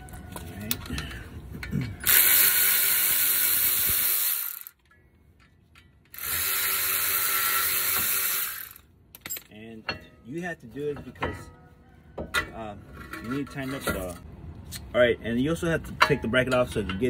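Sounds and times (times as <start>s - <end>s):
electric ratchet motor whir: 2.0s - 4.8s, 6.1s - 8.8s.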